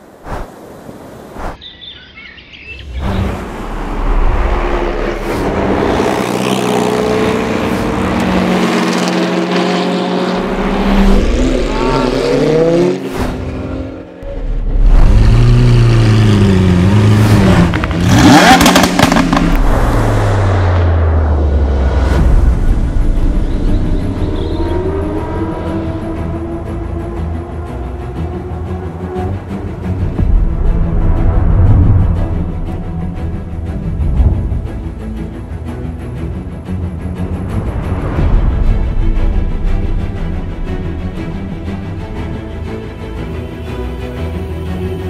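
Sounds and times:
sports car engines revving: 0:04.7 - 0:20.5.

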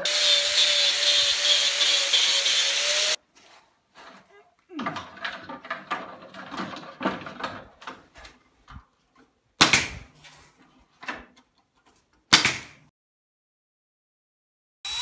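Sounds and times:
pneumatic staple gun shots: 0:12.3 - 0:12.8.

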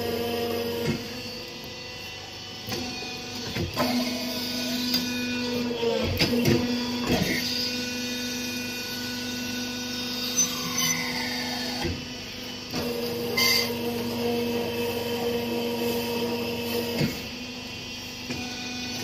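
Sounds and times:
machine motor hum: 0:00.0 - 0:19.0.

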